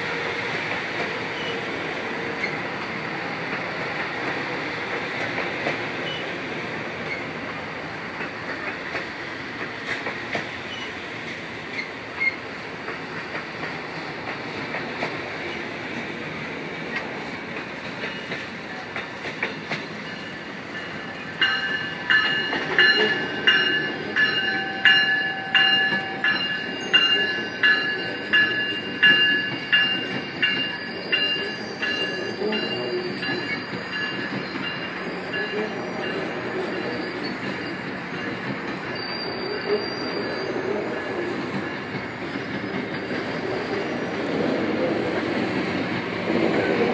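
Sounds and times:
train wheels rumbling on rail: 0.0s - 46.9s
metallic ringing: 20.0s - 35.6s.

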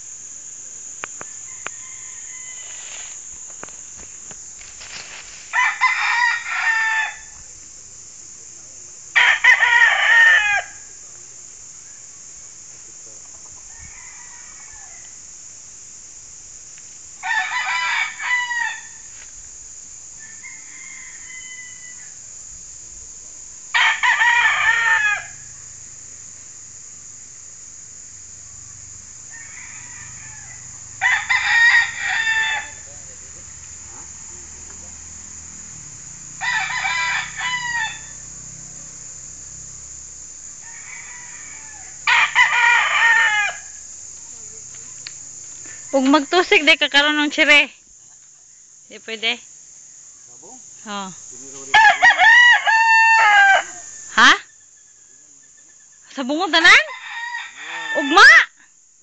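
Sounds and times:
rooster crowing: 1.2s - 3.2s, 5.5s - 7.4s, 9.1s - 10.9s, 13.5s - 15.4s, 17.2s - 19.2s, 20.0s - 22.2s, 23.7s - 25.8s, 29.2s - 33.0s, 36.3s - 39.3s, 40.5s - 43.9s, 51.6s - 54.3s, 56.8s - 58.5s.

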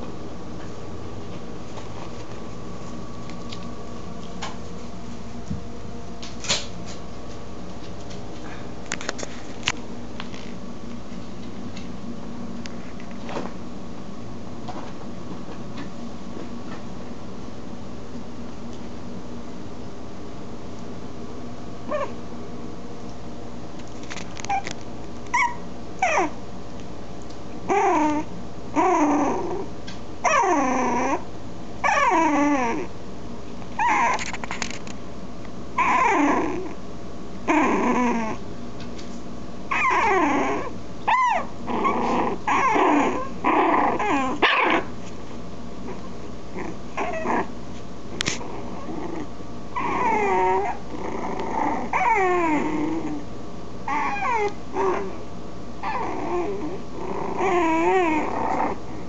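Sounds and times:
puppies squeaky growls and whimpers: 21.9s - 22.2s, 24.4s - 26.4s, 27.7s - 32.9s, 33.8s - 34.6s, 35.8s - 36.8s, 37.5s - 38.4s, 39.7s - 44.9s, 45.9s - 47.5s, 48.3s - 53.2s, 53.9s - 55.2s, 55.8s - 59.0s.

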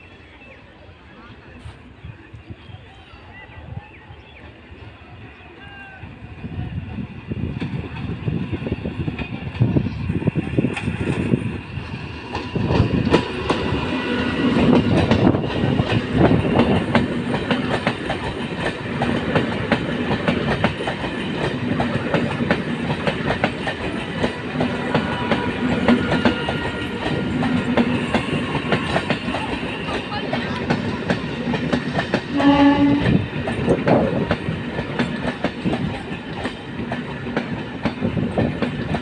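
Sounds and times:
low rumble of train: 0.0s - 39.0s
train wheels clattering over rail joints: 12.2s - 32.3s, 33.0s - 39.0s.

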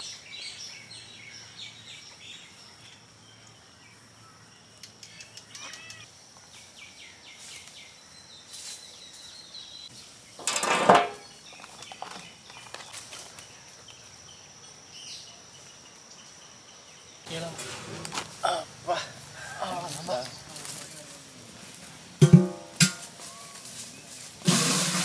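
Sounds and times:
clatter on steel plate: 10.4s - 11.3s.

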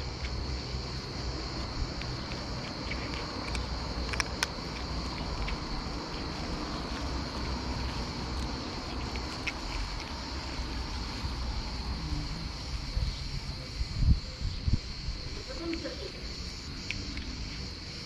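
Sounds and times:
constant high hiss: 0.0s - 18.0s
cat crunching dry kibble: 1.6s - 11.2s.

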